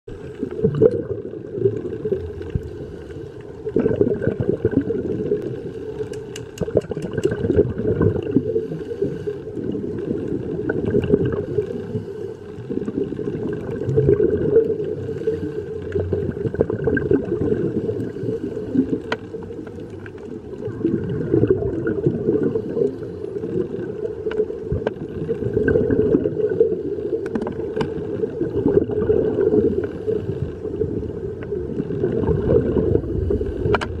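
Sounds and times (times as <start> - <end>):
muffled underwater rush: 0.1 - 34.0
faint clicks: 5.4 - 7.6, 18.9 - 20.4.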